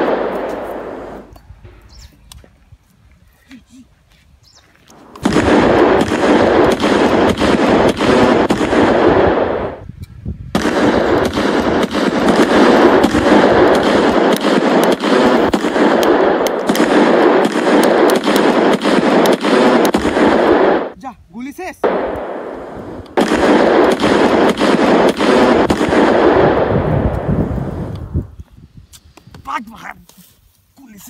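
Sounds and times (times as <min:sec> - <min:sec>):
automatic gunfire: 0:05.1 - 0:09.8, 0:10.6 - 0:21.0, 0:23.2 - 0:27.2.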